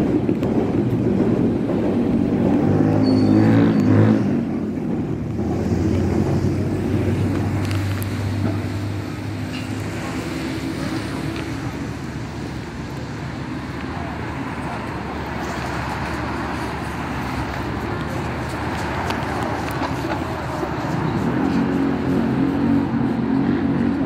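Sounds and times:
constant low traffic rumble: 0.0 - 24.0
vehicle engine hum: 0.0 - 24.0.

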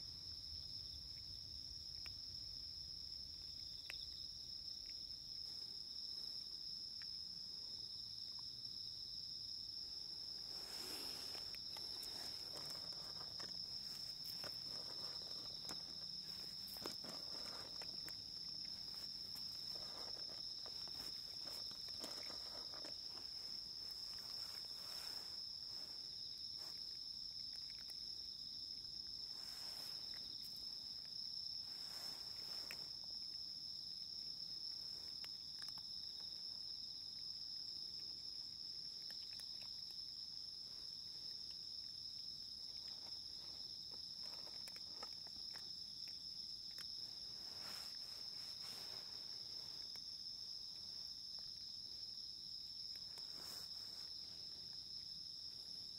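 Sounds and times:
insects chirring: 0.0 - 55.9
faint clicks and rustles: 10.2 - 28.1, 42.5 - 51.5.

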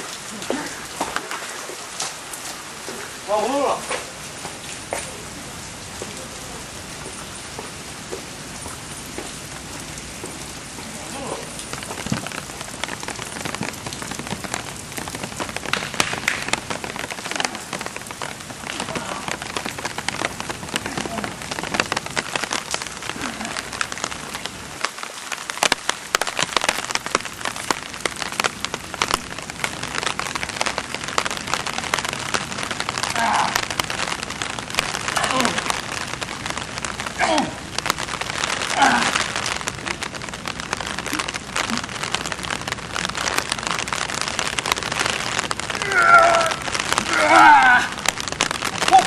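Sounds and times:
steady rain falling: 0.0 - 49.0.

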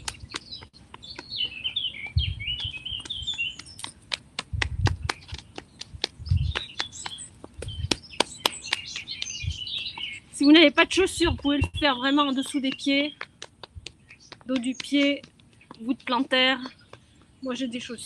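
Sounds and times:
small birds chirping: 0.0 - 18.0
fists tapping on clothing: 2.6 - 9.4, 12.4 - 15.8.

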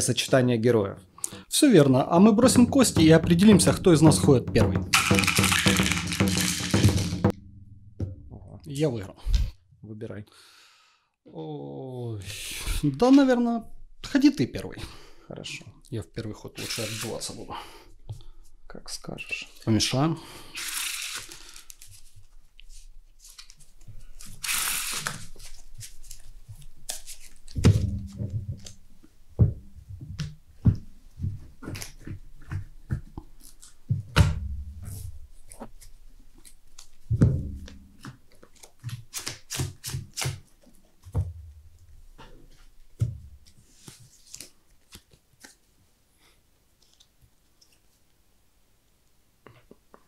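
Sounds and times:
cards clicking and thumping: 4.9 - 7.3, 23.2 - 28.8, 35.0 - 41.3
cards riffle shuffling: 4.9 - 7.3, 16.6 - 17.3, 20.6 - 27.8, 34.9 - 40.7, 43.4 - 45.6.

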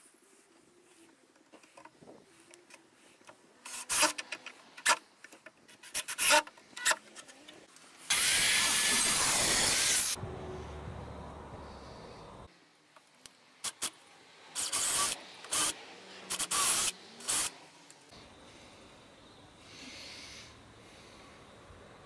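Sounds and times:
power tool or air blast: 8.1 - 10.2, 14.6 - 17.6
low hum: 10.2 - 12.5.

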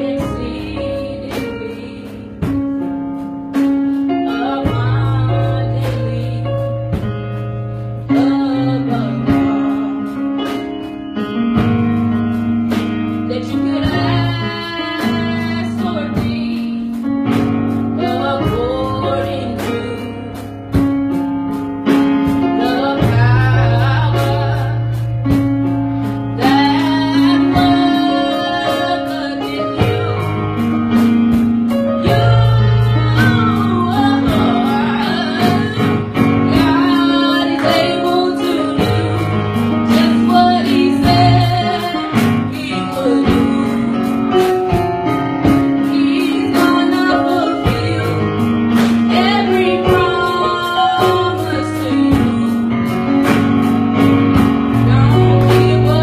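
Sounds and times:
choir singing gospel song: 0.0 - 2.6, 26.4 - 30.5, 32.0 - 43.9, 46.0 - 53.5
regular beat: 0.0 - 56.0
steady bass line: 0.0 - 56.0.

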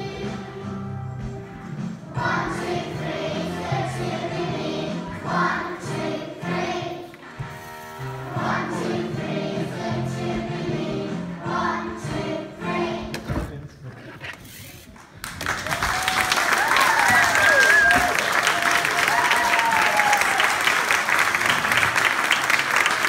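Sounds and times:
children singing: 0.0 - 1.3, 2.1 - 7.2, 8.3 - 13.2
musical accompaniment: 0.0 - 13.2.

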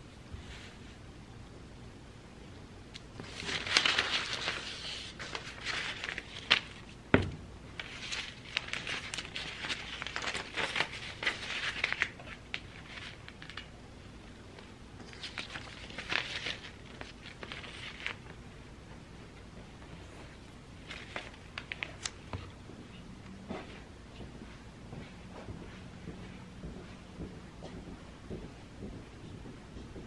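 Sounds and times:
paper rustling and crinkling: 3.2 - 7.0, 7.8 - 13.7, 15.0 - 18.4, 20.0 - 22.6.

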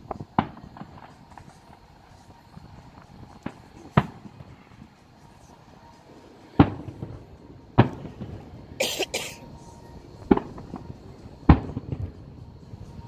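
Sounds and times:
distant firework booms: 11.5 - 12.2.

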